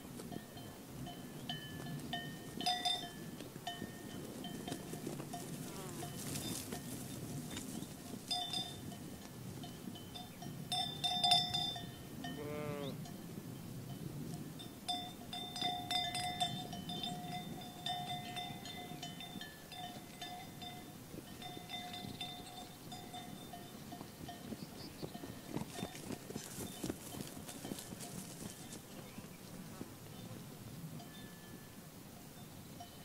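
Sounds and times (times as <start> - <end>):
sheep bells clanking: 0.2 - 29.2, 31.0 - 33.0
sheep bleat: 12.3 - 13.0.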